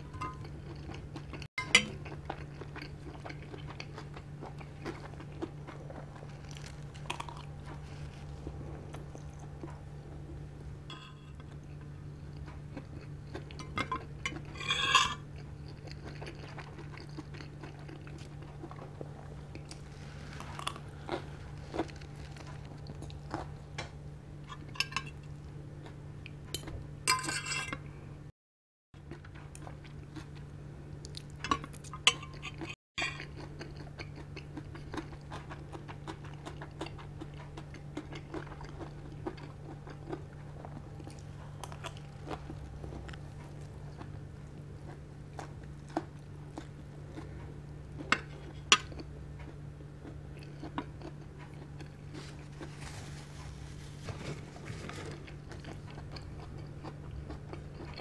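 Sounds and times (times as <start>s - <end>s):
chewing: 0.0s - 26.8s, 29.0s - 58.0s
cutlery clinking on ceramic plate: 0.1s - 0.5s, 10.9s - 11.4s, 13.8s - 15.2s, 26.6s - 27.8s.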